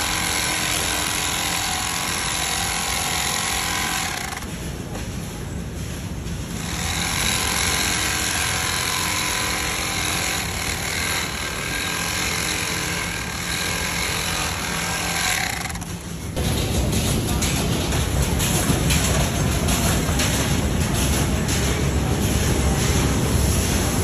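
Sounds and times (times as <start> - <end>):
electric sewing machine running: 0.0 - 4.5, 6.6 - 16.1.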